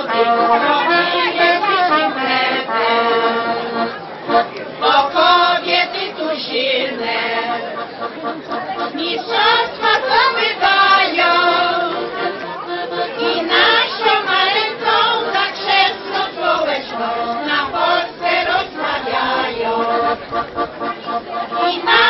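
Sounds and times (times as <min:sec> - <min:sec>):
women's choir singing: 0:00.0 - 0:03.9, 0:04.8 - 0:07.8, 0:08.8 - 0:20.3, 0:21.1 - 0:22.0.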